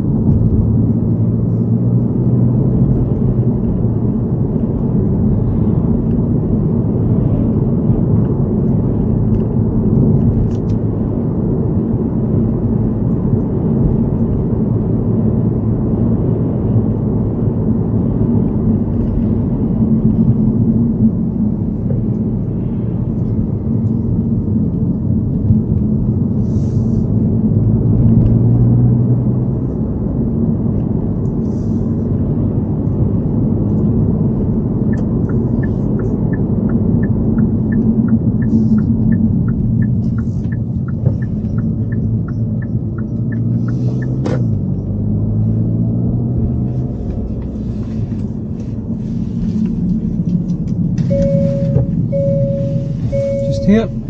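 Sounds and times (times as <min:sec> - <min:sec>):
car road and engine rumble: 0:00.0 - 0:54.0
low hum: 0:46.3 - 0:54.0.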